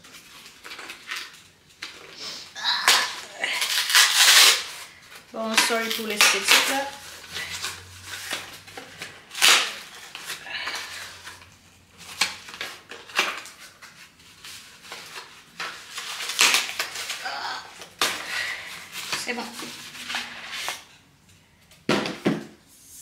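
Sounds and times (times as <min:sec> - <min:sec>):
cardboard box tearing: 0:02.8 - 0:05.0.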